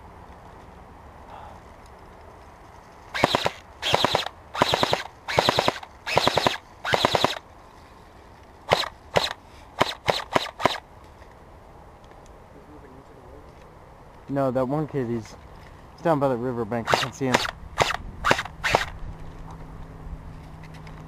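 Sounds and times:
airsoft gun automatic fire: 3.2s - 7.4s, 8.7s - 10.8s, 16.8s - 18.9s
airsoft gun single shots: 3.2s - 7.4s, 8.7s - 10.8s, 16.9s - 18.9s.

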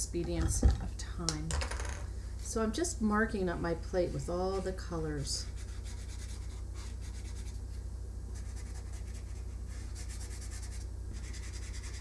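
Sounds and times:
steady low hum: 0.0s - 12.0s
marker rubbing on foam tray: 5.4s - 7.6s, 8.4s - 12.0s.

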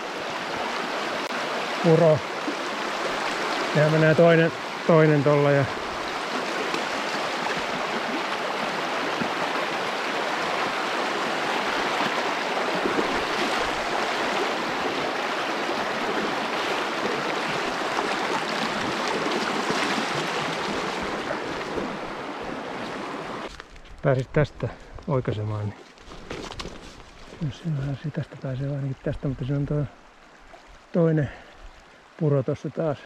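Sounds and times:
flooding stream rushing: 0.0s - 23.6s.

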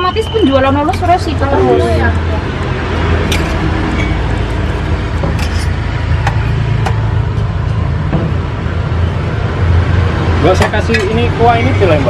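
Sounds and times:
metal spoon clinking on trays: 5.2s - 6.5s, 10.5s - 11.3s.

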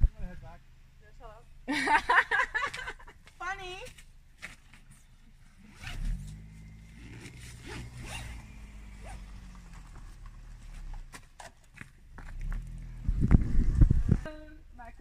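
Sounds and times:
car engine running low: 0.0s - 15.0s
tyres crunching on gravel: 6.0s - 13.2s.

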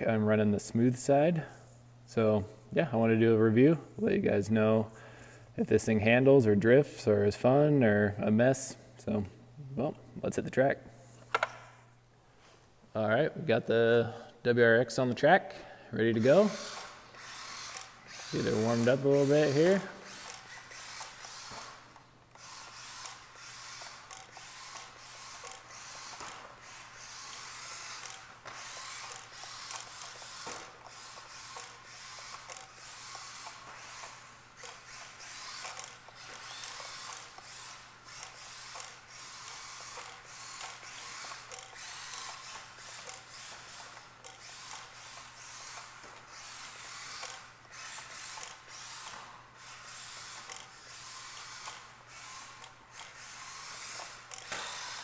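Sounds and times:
rc car motor whirring: 16.0s - 55.0s.

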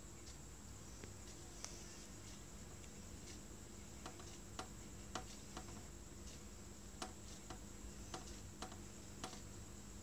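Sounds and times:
faint steady hum: 0.0s - 10.0s
fingertip tapping phone screen: 7.0s - 9.4s.

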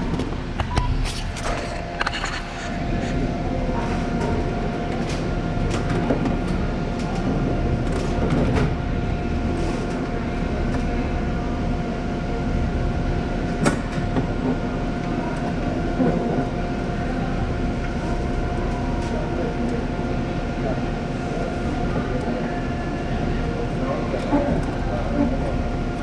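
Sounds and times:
machinery drone with whine: 0.0s - 26.0s.

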